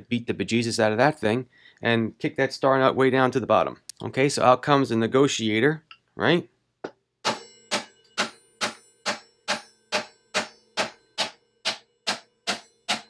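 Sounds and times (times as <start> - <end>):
hammer striking metal tool: 7.2 - 13.0.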